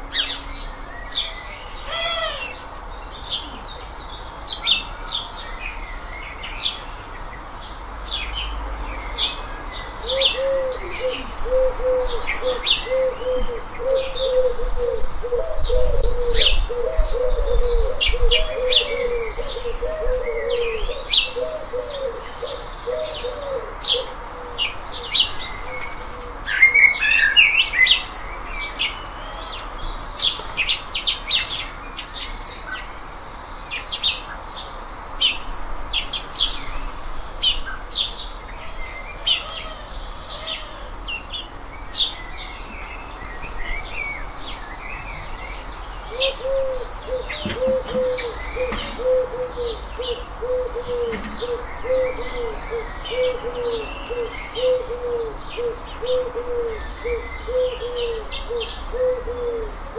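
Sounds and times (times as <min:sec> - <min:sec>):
birds chirping and calling: 0:00.0 - 0:59.9
low repeating bird call: 0:46.1 - 0:59.9.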